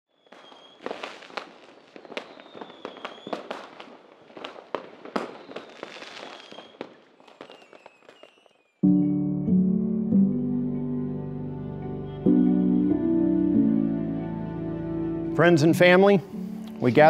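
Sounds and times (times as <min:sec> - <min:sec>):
firework shells whistling: 0:00.1 - 0:08.8
fireworks bangs and pops: 0:00.1 - 0:08.8
fireworks crackling: 0:00.1 - 0:08.8.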